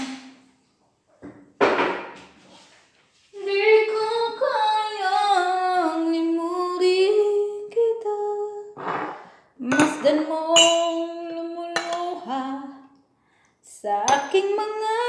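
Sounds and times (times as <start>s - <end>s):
woman singing unaccompanied: 3.4s - 8.8s, 9.6s - 12.9s, 13.7s - 15.0s.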